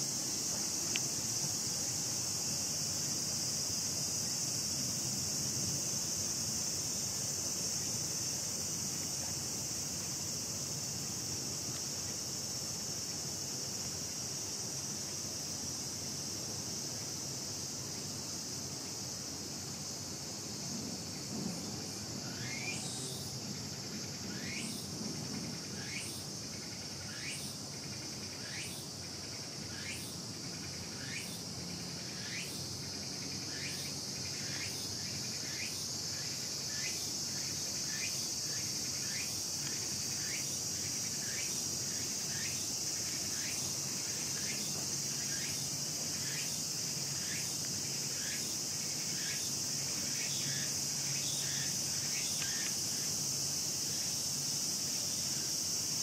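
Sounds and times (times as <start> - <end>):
high-pitched insect drone: 22.0 - 24.9, 25.5 - 56.0.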